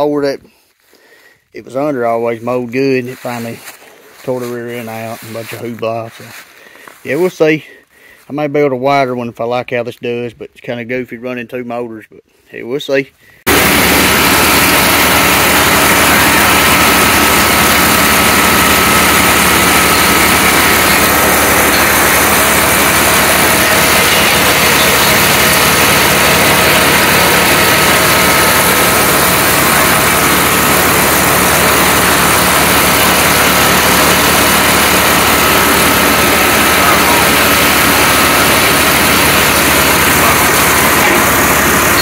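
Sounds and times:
lawn mower engine running: 1.7s - 7.3s, 13.4s - 42.0s
high whine of mower blade: 13.5s - 42.0s.

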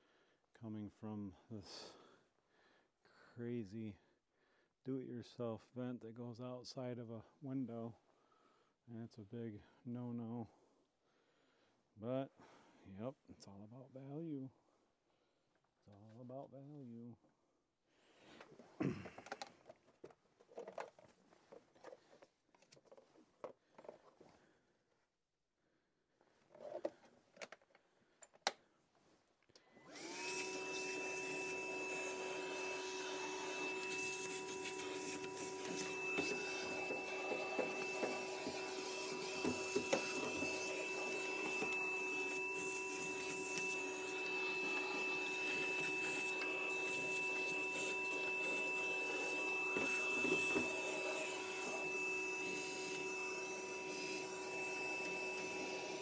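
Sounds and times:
shop vacuum motor whining: 29.6s - 56.0s.

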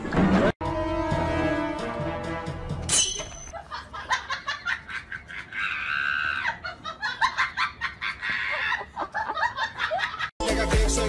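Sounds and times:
people laughing hard: 3.5s - 10.3s
high-pitched shriek of laughter: 5.0s - 6.8s, 8.0s - 9.0s.

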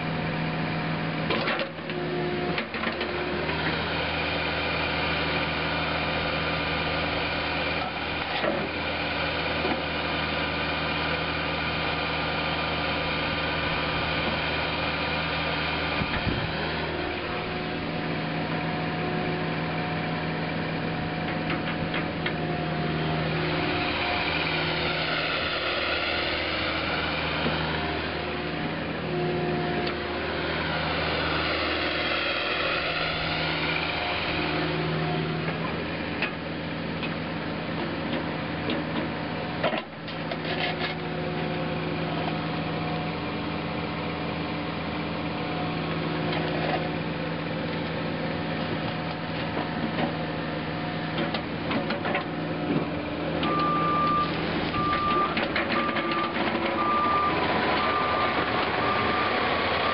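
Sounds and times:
excavator diesel engine running: 0.0s - 59.9s
travel alarm beeping: 53.5s - 59.3s.

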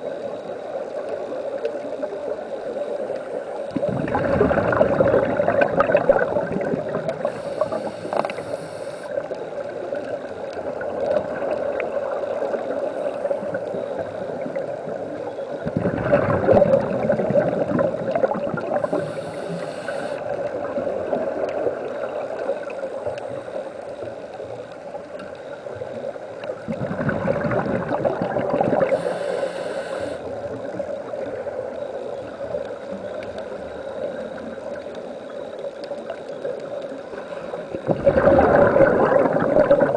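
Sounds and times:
dull underwater hum: 0.0s - 39.9s
bubbling regulator exhalations: 3.7s - 8.7s, 15.6s - 21.8s, 26.6s - 30.7s, 37.5s - 39.9s.

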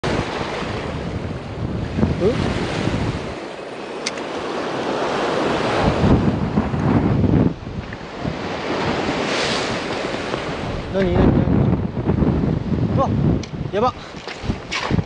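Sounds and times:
waves on stony shore: 0.0s - 15.0s
wind buffeting microphone: 0.0s - 15.0s
sharp click: 4.0s - 4.3s.

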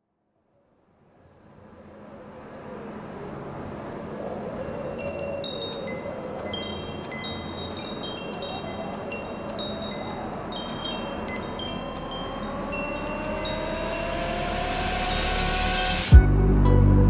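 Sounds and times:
wind-like hiss: 1.0s - 16.2s
tinkling wind-chime notes: 4.7s - 17.0s
low sustained tone: 5.0s - 17.0s.

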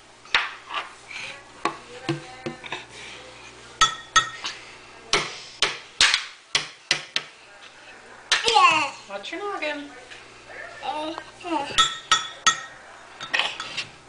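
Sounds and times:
plastic spoon banging on glass: 11.8s - 12.7s.

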